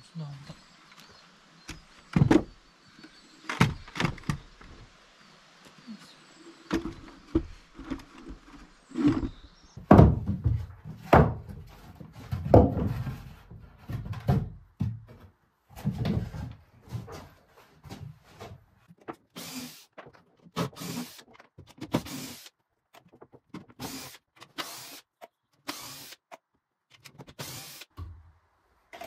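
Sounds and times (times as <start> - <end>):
hard objects knocking and thudding: 6.7 - 19.2.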